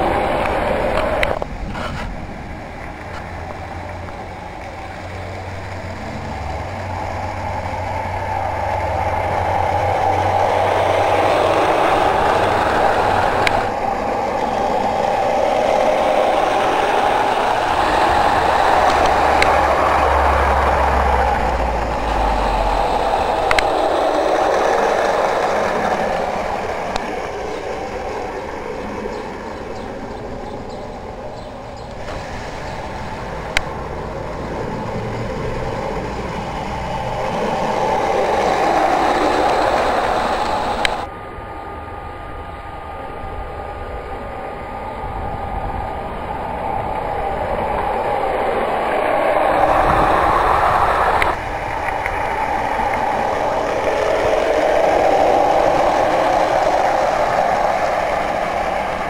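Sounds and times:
model train motor and wheel rumble: 0:00.0 - 0:59.0
sharp clicks: 0:15.2 - 0:27.9.

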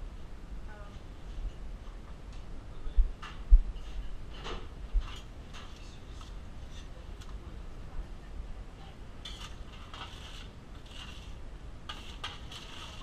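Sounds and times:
steady low hum: 0:00.0 - 0:13.0
short scraping bursts: 0:09.2 - 0:13.0.

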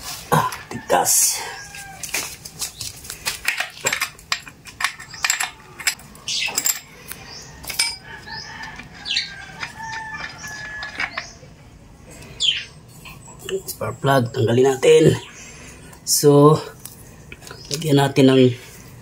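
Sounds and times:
birds chirping: 0:04.8 - 0:19.0.

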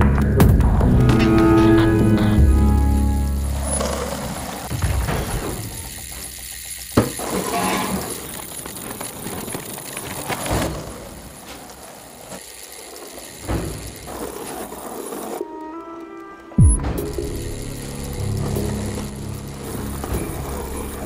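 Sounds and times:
cogwheels and chain ratcheting: 0:01.8 - 0:15.8, 0:16.4 - 0:21.0
sharp mechanical knocks: 0:04.7 - 0:08.4, 0:13.3 - 0:14.8, 0:16.6 - 0:21.0.

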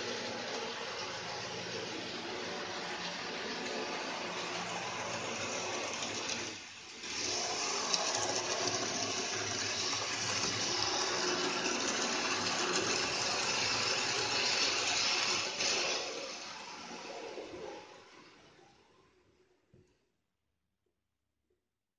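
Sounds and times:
model train running on track: 0:00.0 - 0:17.5.

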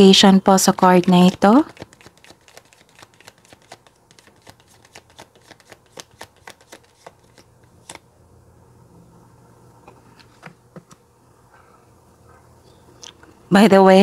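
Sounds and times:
cards being shuffled: 0:00.7 - 0:08.0.

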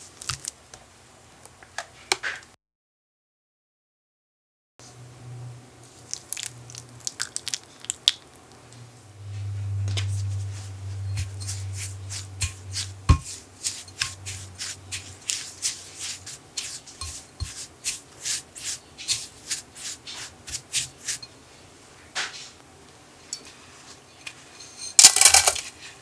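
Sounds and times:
low rumble: 0:08.8 - 0:13.2
spatula scraping glass bowl: 0:09.4 - 0:21.3, 0:24.2 - 0:25.0.

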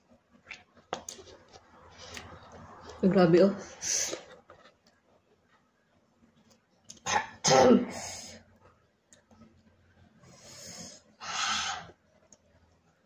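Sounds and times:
woman coughing: 0:07.1 - 0:08.0.

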